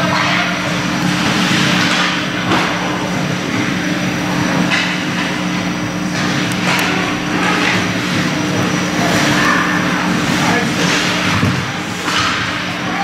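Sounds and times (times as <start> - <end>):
hockey sticks knocking puck: 10.8 - 12.6.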